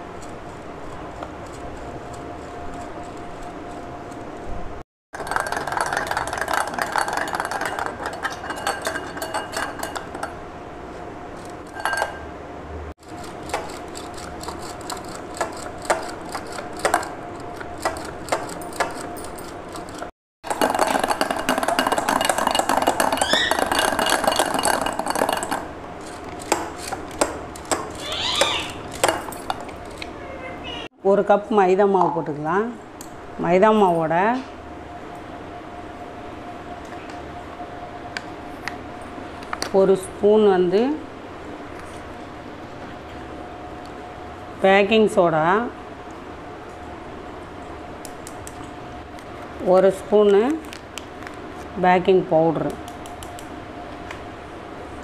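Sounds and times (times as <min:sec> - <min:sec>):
beaters rattling against glass bowl: 0:05.2 - 0:10.3, 0:20.5 - 0:25.7.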